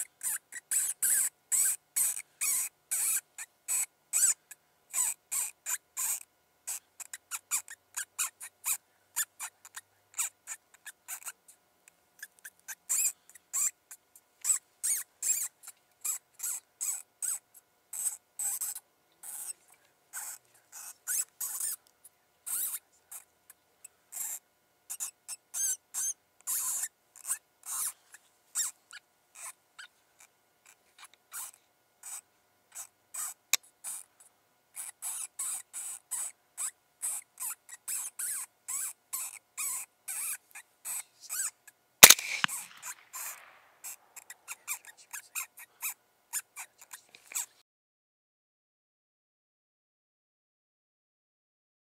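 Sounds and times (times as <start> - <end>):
mouse distress squeaks: 0.0 - 11.4, 12.2 - 13.8, 14.4 - 19.5, 20.2 - 21.8, 22.5 - 23.2, 24.1 - 27.9, 28.6 - 29.9, 30.6 - 32.2, 32.8 - 34.1, 34.8 - 47.5.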